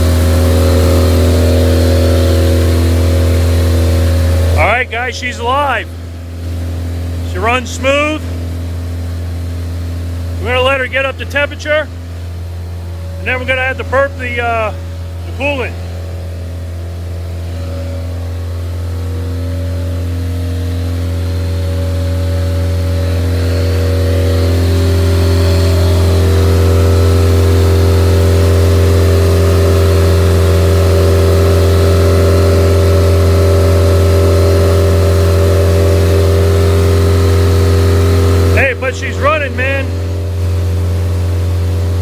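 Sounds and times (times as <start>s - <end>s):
aircraft engine idling: 0.0s - 42.0s.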